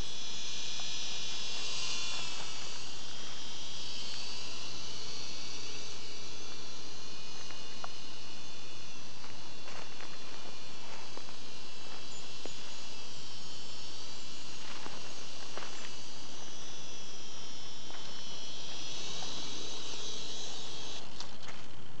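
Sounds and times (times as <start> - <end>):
toy helicopter whine: 0.0 - 22.0
footsteps on dry leaves: 7.2 - 22.0.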